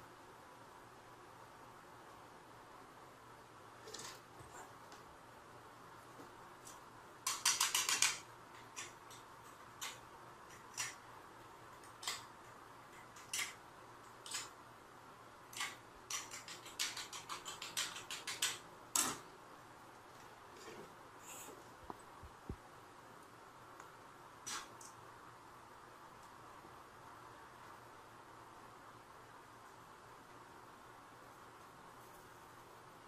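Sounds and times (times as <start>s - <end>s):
small hard objects clicking: 7.2s - 11.0s, 15.6s - 19.2s.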